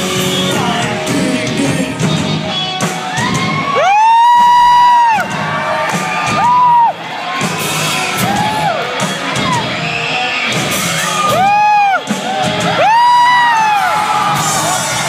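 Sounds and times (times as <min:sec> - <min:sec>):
crowd noise: 0:00.0 - 0:15.0
music: 0:00.0 - 0:15.0.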